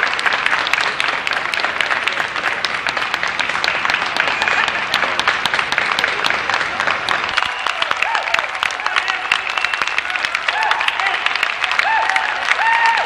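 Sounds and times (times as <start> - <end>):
crowd applauding: 0.0 - 13.0.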